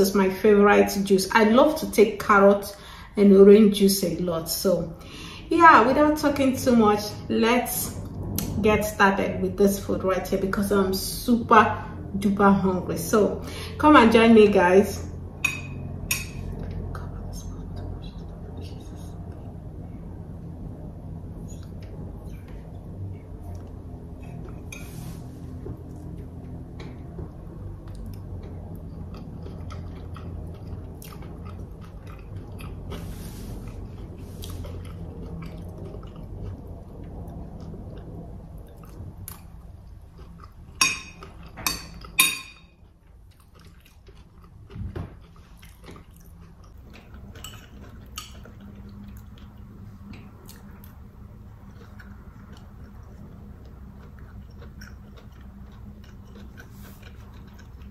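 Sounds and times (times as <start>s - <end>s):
chewing: 25.7s - 57.9s.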